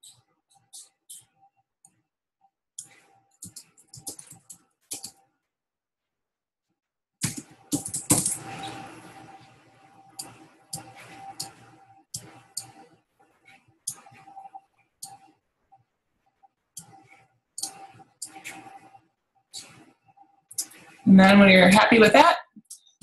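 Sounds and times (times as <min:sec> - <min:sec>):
computer keyboard typing: 0:03.4 - 0:05.2, 0:07.2 - 0:08.8, 0:10.1 - 0:11.6
faint background hum: 0:20.5 - 0:23.0.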